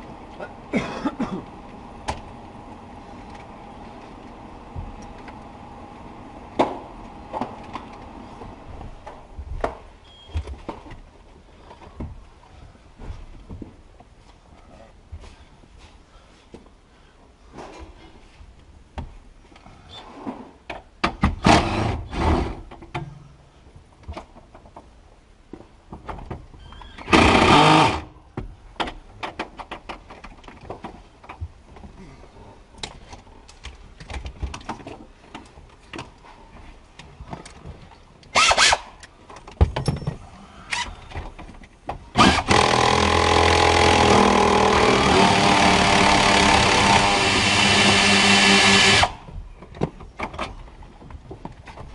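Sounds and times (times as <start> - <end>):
power drill running: 27.1 - 28.1, 42.2 - 49.2.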